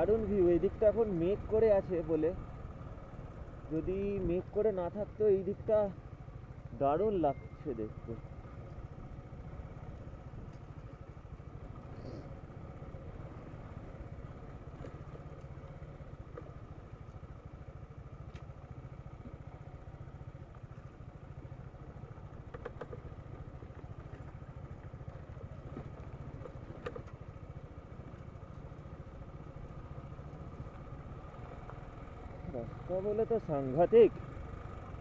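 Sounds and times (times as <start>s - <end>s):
motorcycle engine running: 0.0s - 35.0s.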